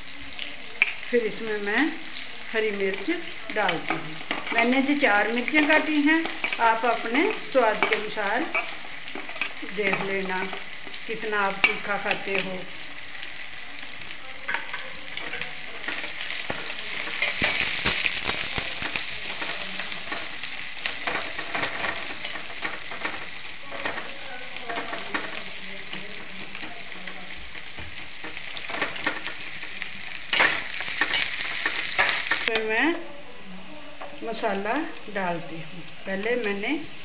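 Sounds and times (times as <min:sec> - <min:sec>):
onions sizzling in hot oil: 0:00.0 - 0:37.0
metal spatula scraping a pan: 0:14.5 - 0:29.6.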